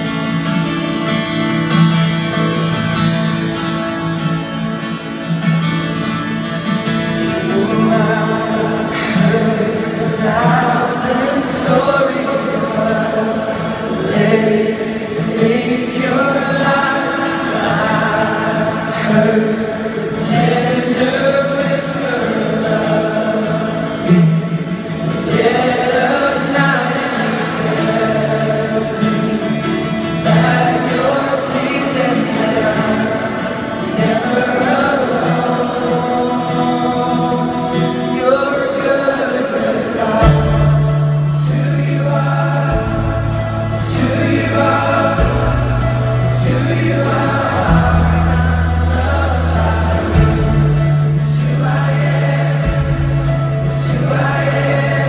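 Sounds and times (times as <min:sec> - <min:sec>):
acoustic guitars: 0:00.0 - 0:55.0
crowd singing together: 0:00.0 - 0:55.0
deep bass line: 0:40.2 - 0:55.0.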